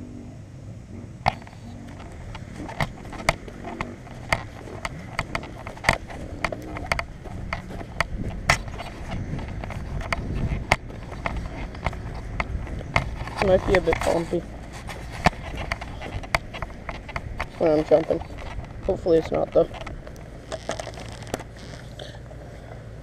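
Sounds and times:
low rumble: 0:00.0 - 0:23.0
camera handling clicks and knocks: 0:14.7 - 0:17.6.

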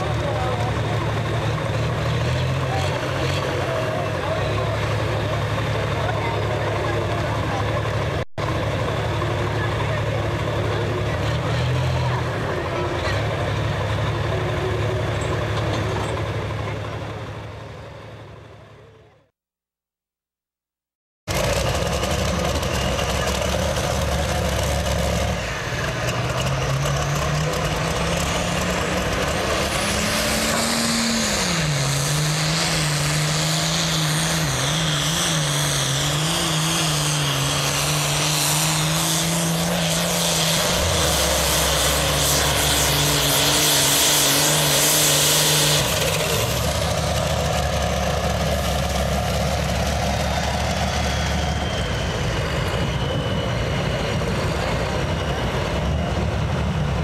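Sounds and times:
tractor diesel engine at full throttle: 0:00.0 - 0:19.3, 0:21.3 - 0:57.0.

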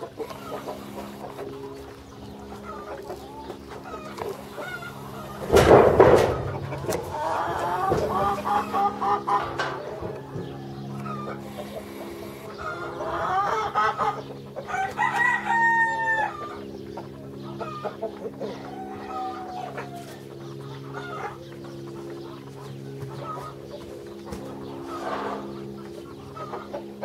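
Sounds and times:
chickens clucking: 0:00.0 - 0:27.0
steady low hum: 0:00.0 - 0:27.0
rooster crowing: 0:06.2 - 0:16.7, 0:17.6 - 0:21.4.

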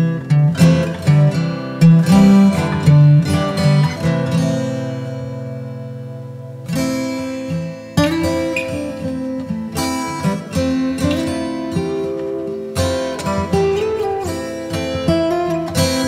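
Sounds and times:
acoustic guitar music: 0:00.0 - 0:16.0.

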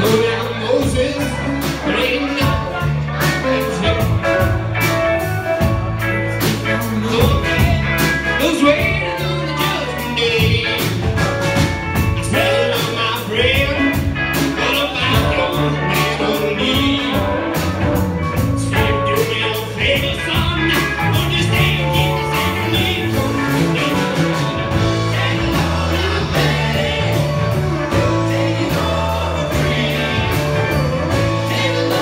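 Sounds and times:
person singing: 0:00.0 - 0:05.0, 0:06.3 - 0:32.0
live rock band playing: 0:00.0 - 0:32.0.

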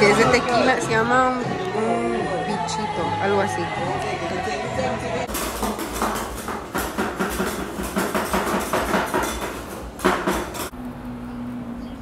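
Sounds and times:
utensils and dishes clattering: 0:05.3 - 0:10.7.

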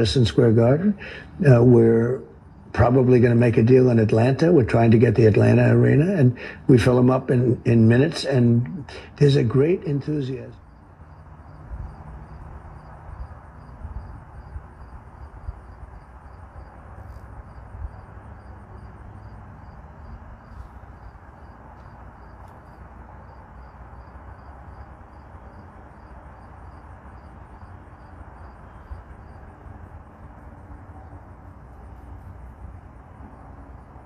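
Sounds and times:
low rumble and hiss: 0:00.0 - 0:34.0.

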